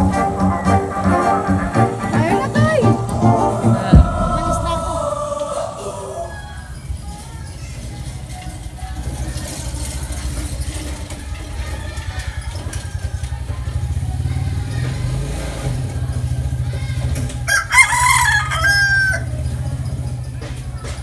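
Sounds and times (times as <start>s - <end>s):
low rumble: 2.9s - 8.3s
rooster crowing: 3.7s - 7.0s, 17.5s - 19.4s.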